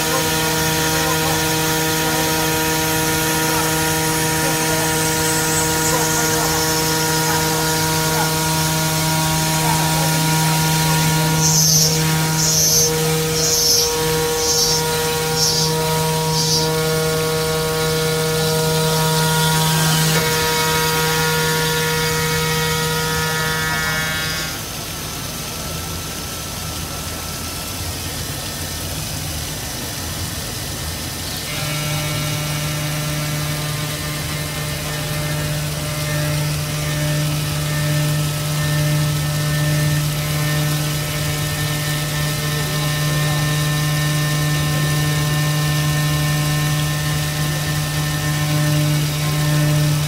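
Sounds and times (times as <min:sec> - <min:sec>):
coolant water spraying: 0:00.0 - 0:19.6
machine spindle humming and whining: 0:00.0 - 0:50.0.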